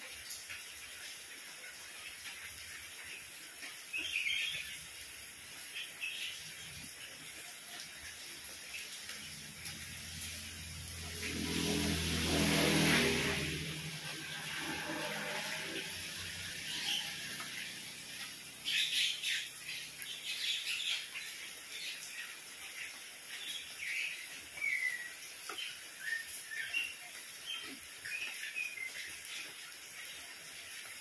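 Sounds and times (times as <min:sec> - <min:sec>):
rain on paving and leaves: 0:00.0 - 0:31.0
small birds chirping: 0:03.8 - 0:09.4, 0:18.5 - 0:29.7.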